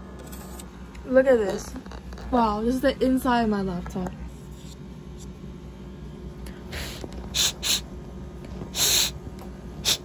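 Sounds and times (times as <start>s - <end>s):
breathy puffs of air: 6.5s - 7.9s, 8.7s - 9.2s, 9.8s - 10.0s.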